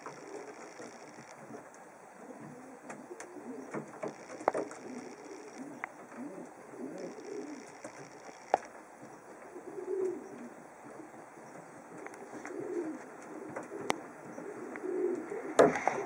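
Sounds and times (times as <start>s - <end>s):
pigeons cooing: 0.0s - 16.0s
sharp clicks: 2.9s - 6.2s, 7.0s - 8.8s.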